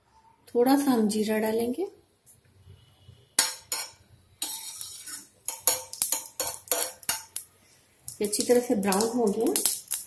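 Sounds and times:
spoon scraping and clinking on pan: 3.4s - 7.4s
seeds frying in oil: 3.4s - 10.0s.

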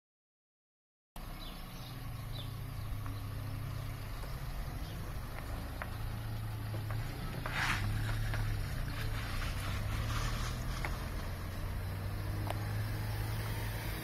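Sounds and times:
car engine running at low revs: 1.2s - 14.0s
short rushing noise: 7.2s - 11.8s.

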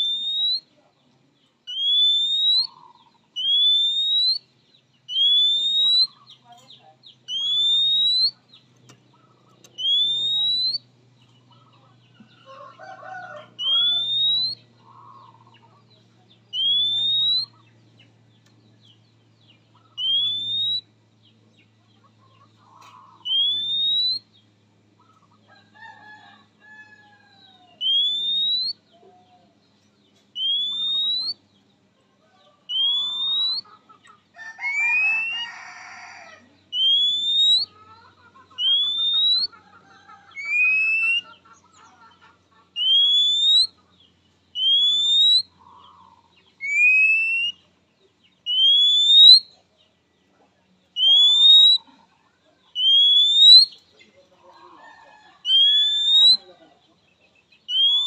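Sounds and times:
bird whistling upslurred call: 0.0s - 0.7s, 1.7s - 4.5s, 5.1s - 6.4s, 7.3s - 8.5s, 9.2s - 10.9s, 13.6s - 15.6s, 16.5s - 17.7s, 19.8s - 20.9s, 22.6s - 24.3s, 27.8s - 28.9s, 30.4s - 31.4s, 32.6s - 33.8s, 36.7s - 37.8s, 38.4s - 39.6s, 40.3s - 41.5s, 42.7s - 43.8s, 44.5s - 47.7s, 48.4s - 49.6s, 51.0s - 51.9s, 52.7s - 53.8s, 55.4s - 56.5s, 57.7s - 58.0s
faint bird chirps: 0.0s - 58.0s.

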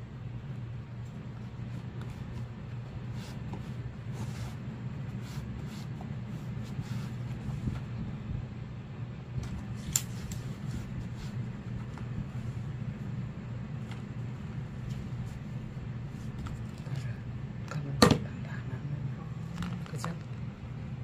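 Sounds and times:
steady low hum: 0.0s - 21.0s
wooden roller rubbing on cloth: 1.6s - 7.8s.

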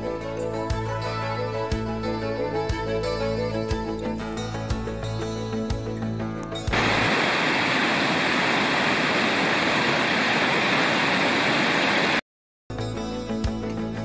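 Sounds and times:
stream rushing over rocks: 6.7s - 12.2s.

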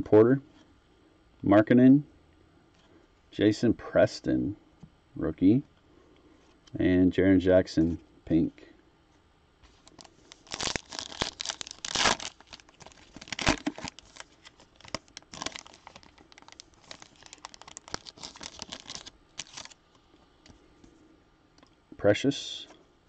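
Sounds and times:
wrapper tearing and crinkling: 9.7s - 19.8s.

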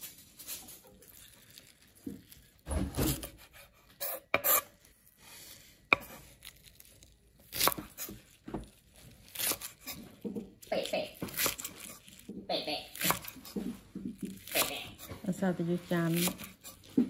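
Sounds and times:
knife slicing chives: 3.1s - 4.7s, 5.9s - 6.6s, 7.4s - 10.2s, 11.1s - 12.3s, 12.9s - 17.0s.

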